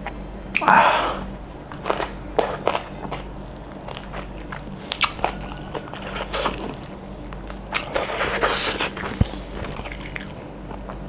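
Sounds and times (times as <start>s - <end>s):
wet mouth clicks: 0.5s - 0.7s, 4.9s - 5.6s
sucking and smacking on a bone: 1.7s - 11.0s.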